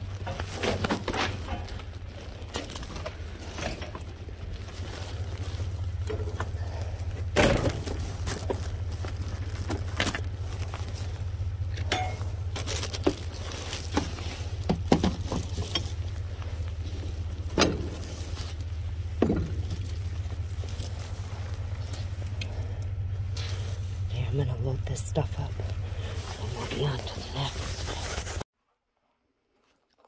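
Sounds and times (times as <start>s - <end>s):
steady low hum: 0.0s - 28.5s
items knocking and clinking: 11.8s - 16.0s, 19.2s - 19.9s.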